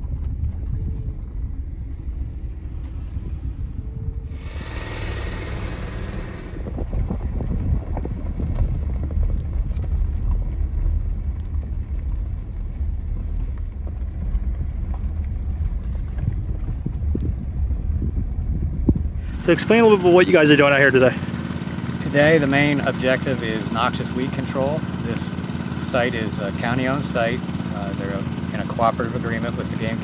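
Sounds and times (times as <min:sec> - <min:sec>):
vehicle engine and road rumble: 0:00.0 - 0:30.0
burst of hiss: 0:04.3 - 0:06.7.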